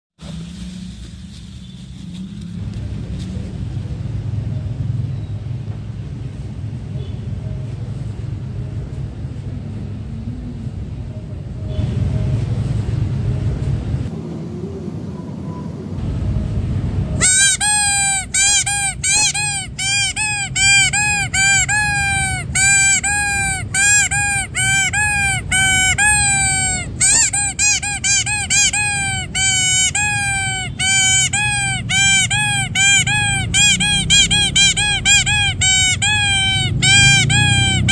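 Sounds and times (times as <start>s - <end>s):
low rumbling noise: 0.2s - 37.9s
rubber duck toy squeaking: 17.2s - 37.9s.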